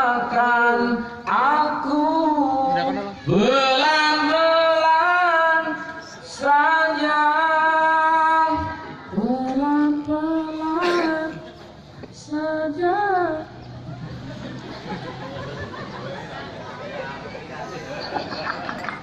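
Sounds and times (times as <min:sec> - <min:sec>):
man singing into microphone: 0:00.0 - 0:11.5.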